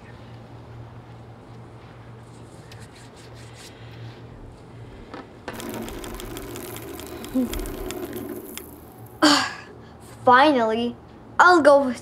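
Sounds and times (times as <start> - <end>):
spinner disc whirring with clicks: 5.5 - 9.2.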